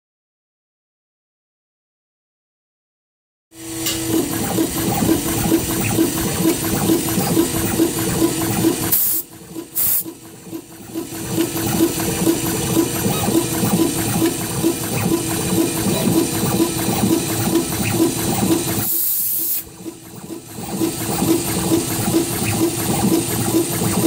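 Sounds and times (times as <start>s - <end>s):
machine rushing hiss with pulses: 8.9s - 10.1s, 11.6s - 19.7s.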